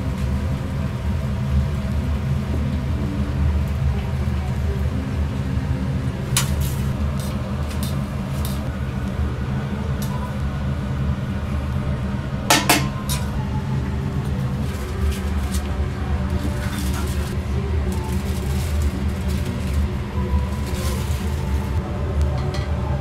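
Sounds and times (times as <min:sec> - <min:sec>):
low hum: 0:00.0 - 0:23.0
utensils clinking on griddle: 0:12.5 - 0:13.3.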